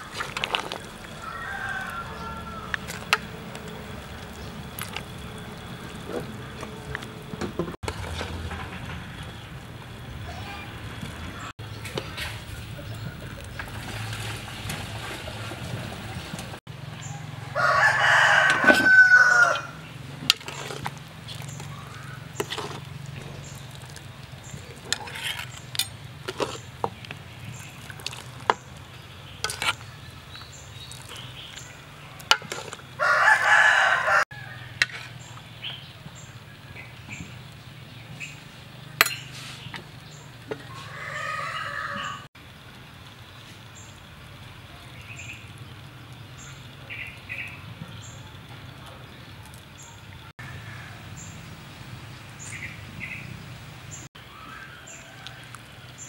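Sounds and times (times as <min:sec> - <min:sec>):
rooster crowing: 0:01.2 - 0:02.9, 0:17.0 - 0:19.8, 0:33.0 - 0:34.8, 0:40.6 - 0:42.3, 0:50.4 - 0:51.3, 0:54.3 - 0:56.0
metal ladle clinking on pot: 0:39.0 - 0:39.3.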